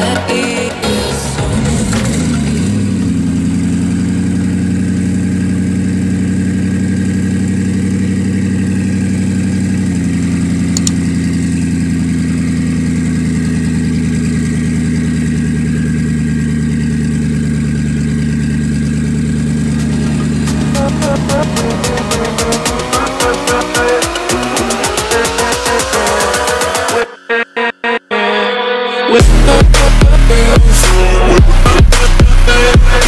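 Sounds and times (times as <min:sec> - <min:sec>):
car engine idling: 0:00.0 - 0:27.1, 0:29.2 - 0:33.0.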